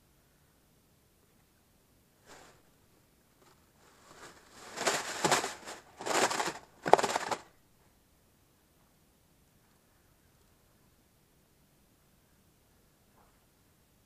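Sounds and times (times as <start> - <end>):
plastic bag crinkling: 3.4 - 7.5.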